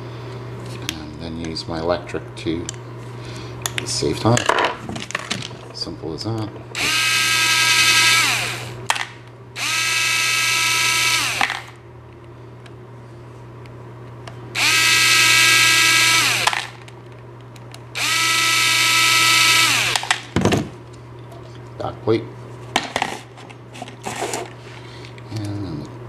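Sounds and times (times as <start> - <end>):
electric screwdriver whirring: 6.8 - 8.8, 9.6 - 11.8, 14.6 - 16.8, 18.0 - 20.1.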